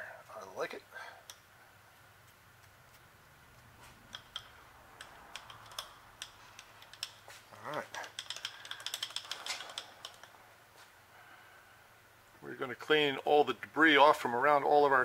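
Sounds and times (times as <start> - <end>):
small metal parts clicking: 4.1 - 10.4.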